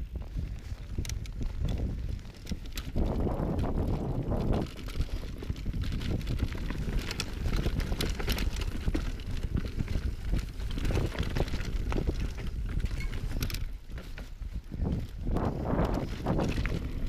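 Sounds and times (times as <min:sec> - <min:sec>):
bike tyres knocking and rattling: 0:00.0 - 0:17.0
wind on microphone: 0:00.0 - 0:17.0.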